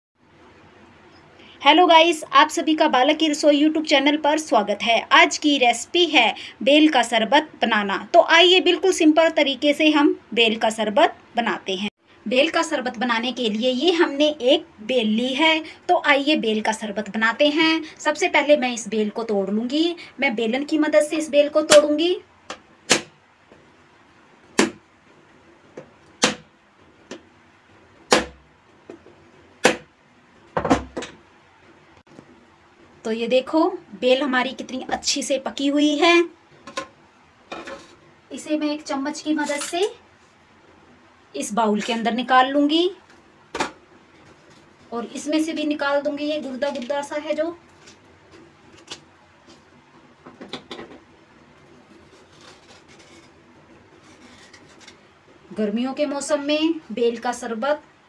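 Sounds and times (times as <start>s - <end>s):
rolling pin knocking on fruit shell: 24.6s - 24.8s, 25.8s - 26.5s, 28.1s - 29.0s, 29.6s - 29.9s.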